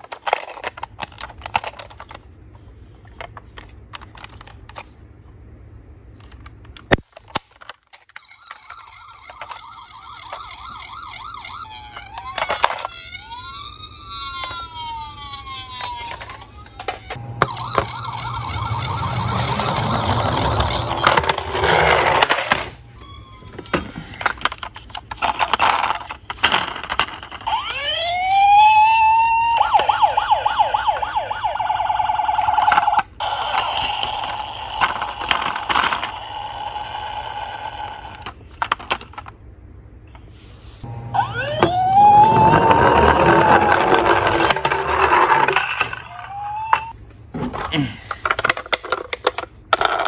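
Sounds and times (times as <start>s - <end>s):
plastic toy cars clattering: 0.0s - 5.0s, 6.1s - 17.9s, 18.5s - 27.8s, 32.1s - 39.4s, 41.7s - 50.0s
electronic toy siren warbling: 8.2s - 24.3s, 27.3s - 38.3s, 40.8s - 47.0s.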